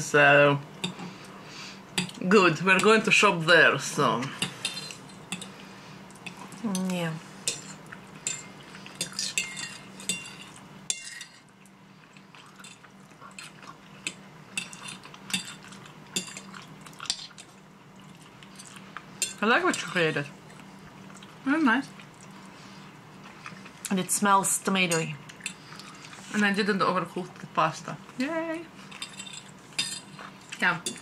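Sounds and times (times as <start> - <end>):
forks clinking on plates: 6.2 - 11.4, 29.0 - 31.0.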